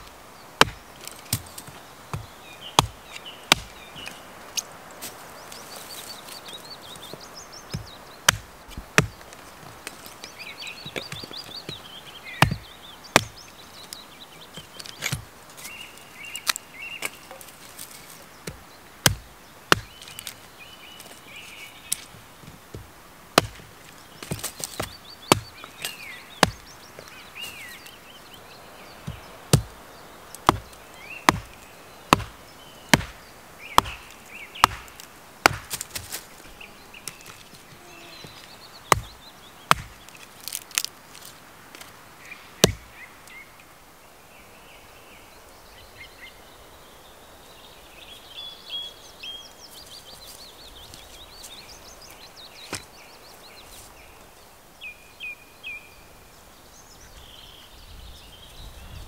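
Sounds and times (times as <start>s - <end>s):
small birds chirping: 0.0s - 59.0s
hatchet chopping wood: 0.6s - 4.2s, 7.7s - 10.0s, 12.4s - 13.4s, 14.6s - 15.3s, 18.4s - 20.4s, 22.7s - 27.1s, 29.0s - 29.8s, 30.4s - 36.2s, 38.8s - 40.9s, 42.6s - 42.9s.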